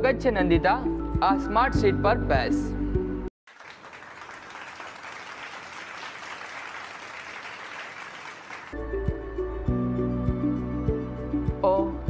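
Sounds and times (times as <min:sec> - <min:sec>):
children applauding: 0:03.5 - 0:08.8.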